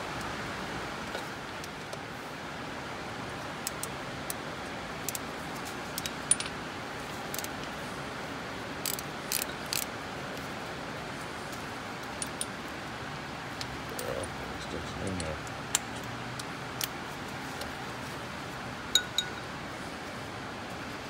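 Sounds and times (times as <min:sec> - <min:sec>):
rain hiss: 0:00.0 - 0:21.0
socket wrench metallic clinks: 0:18.9 - 0:19.5.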